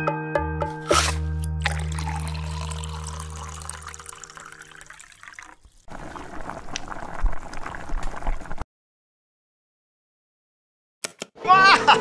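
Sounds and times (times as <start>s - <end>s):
water trickling into a can: 1.6s - 8.6s.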